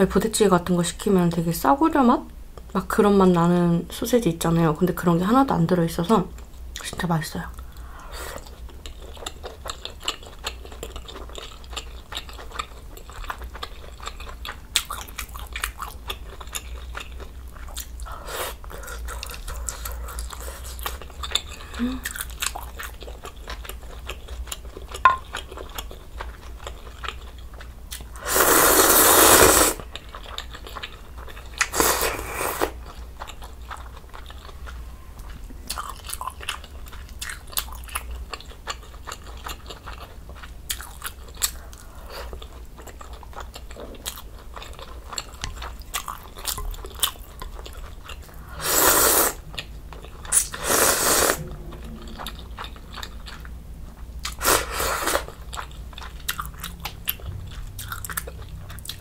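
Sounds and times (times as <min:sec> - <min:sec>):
wet chewing and smacking: 0:07.7 - 0:28.1, 0:32.6 - 0:48.5, 0:55.2 - 0:59.0
loud slurps of noodles: 0:28.2 - 0:29.8, 0:48.6 - 0:49.4, 0:50.4 - 0:51.4.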